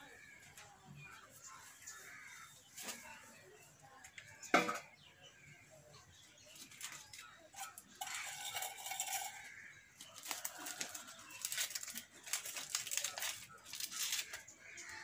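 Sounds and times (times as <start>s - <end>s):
dry wrapper crinkling: 6.6s - 15.0s.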